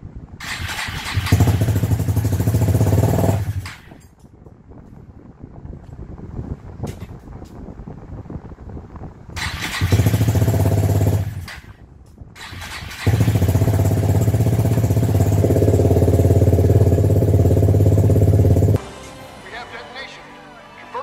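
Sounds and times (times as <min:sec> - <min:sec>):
motorcycle engine cranking and starting: 0:00.4 - 0:04.3, 0:09.4 - 0:11.8, 0:12.4 - 0:18.8.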